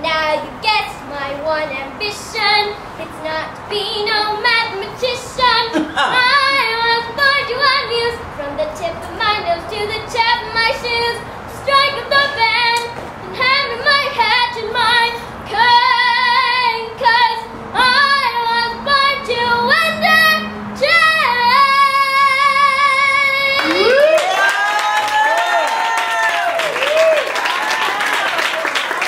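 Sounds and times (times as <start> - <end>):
girl singing into a microphone: 0.0 - 24.1.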